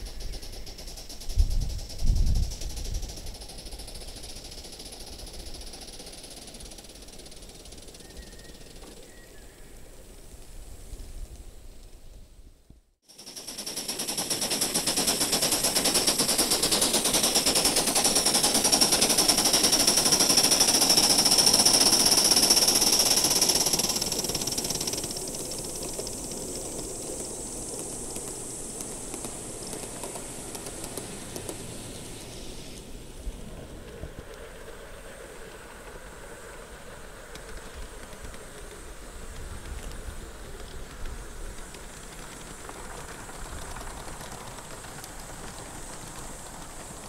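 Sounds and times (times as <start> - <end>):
model steam locomotive exhaust beats: 0.0 - 47.0
wheels clattering on track: 13.2 - 47.0.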